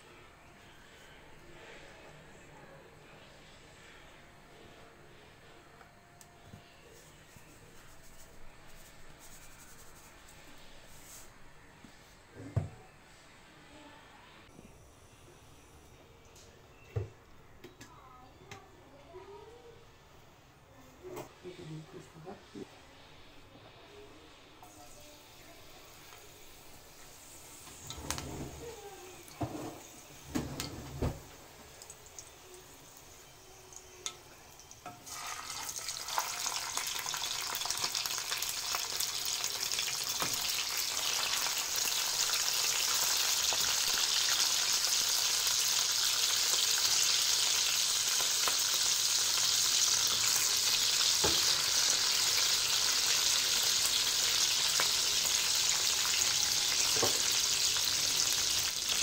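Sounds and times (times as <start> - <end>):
fish sizzling in hot oil: 31.0 - 59.0.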